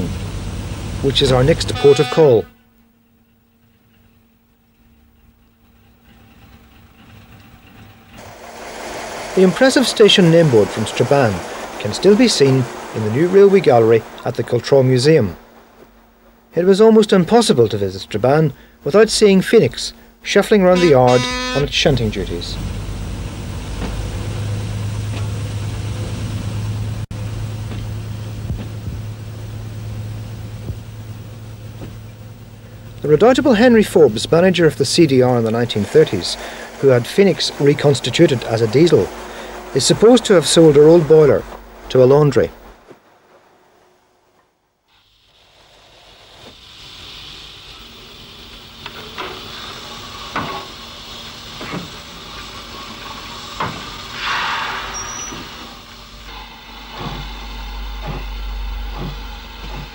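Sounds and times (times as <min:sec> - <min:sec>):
steam locomotive hissing: 0:00.0 - 0:02.7, 0:05.8 - 0:59.9
low steady hum: 0:00.0 - 0:44.8
engine droning: 0:00.0 - 0:54.2, 0:55.4 - 0:59.9.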